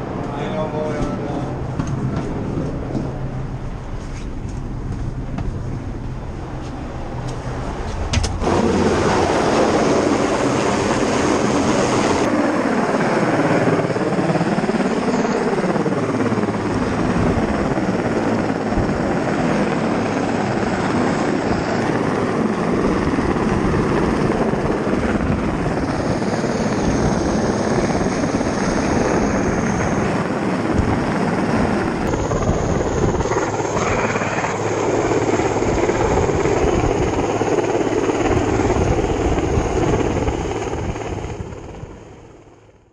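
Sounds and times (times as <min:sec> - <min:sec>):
helicopter rotor and engine: 0:00.0 - 0:42.9
rotor downwash rushing: 0:08.4 - 0:12.3.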